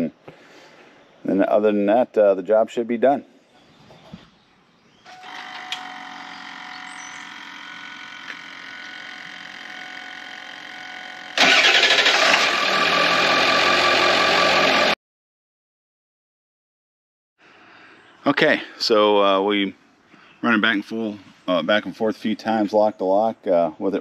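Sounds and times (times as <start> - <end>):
steady hum of several tones: 4.9 - 11.4
diesel engine running: 5.2 - 15.0.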